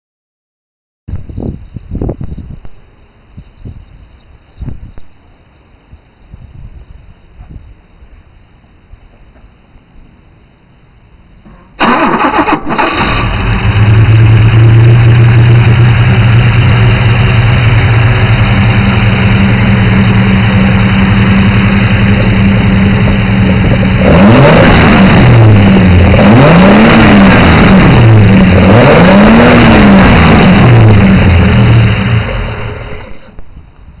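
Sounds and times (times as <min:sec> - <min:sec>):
car engine cranking and idling: 0:11.3 - 0:34.0
engine revving: 0:11.5 - 0:33.4.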